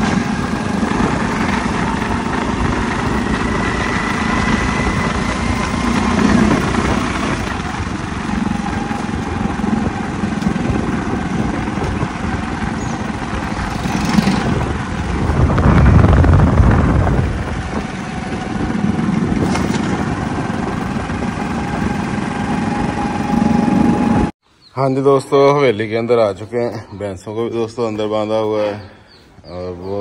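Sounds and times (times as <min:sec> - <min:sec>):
motorcycle engine running: 0:00.0 - 0:24.3
wind rumble on microphone: 0:00.0 - 0:24.3.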